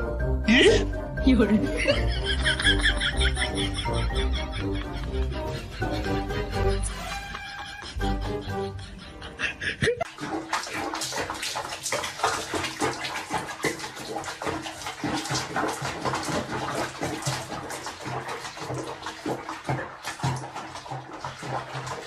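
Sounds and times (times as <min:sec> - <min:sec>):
water splashing in bathtub: 0:01.3 - 0:07.9, 0:10.0 - 0:22.0.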